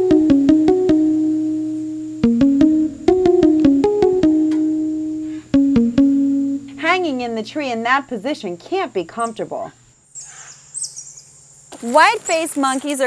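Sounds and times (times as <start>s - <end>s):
light melody of quick notes: 0.0s - 7.3s.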